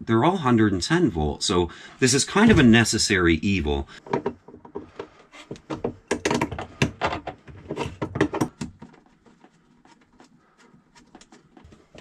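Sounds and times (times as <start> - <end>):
cable connectors clicking and rattling: 4.0 - 12.0.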